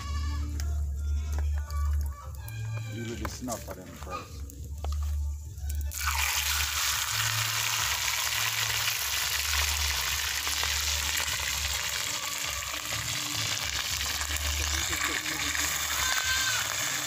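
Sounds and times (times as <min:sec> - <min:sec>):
fish sizzling in hot oil: 0:05.8 - 0:17.0.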